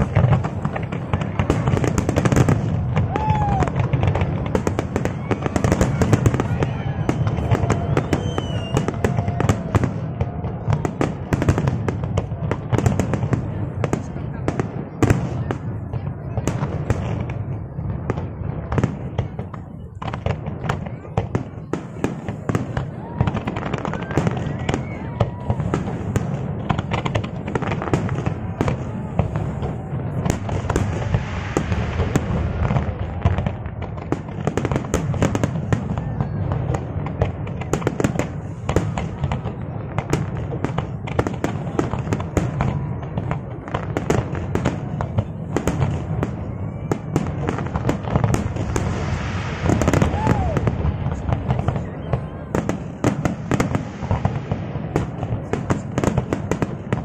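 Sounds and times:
fireworks bangs and crackling: 0.0s - 57.0s.

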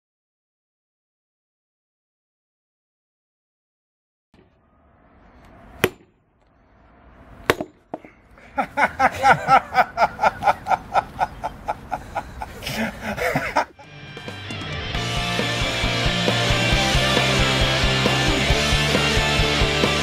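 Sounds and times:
sledgehammer striking steel wedge: 5.7s - 6.2s, 7.4s - 8.2s
person laughing in bursts: 8.4s - 14.0s.

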